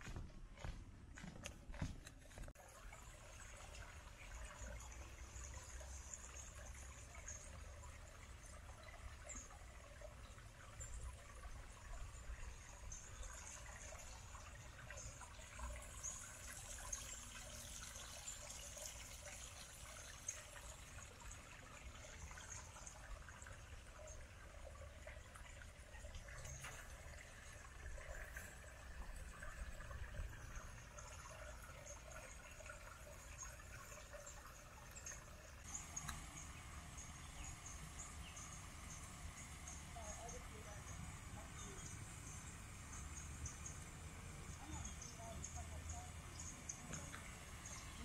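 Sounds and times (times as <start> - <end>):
creek trickling over rocks: 2.2 - 48.0.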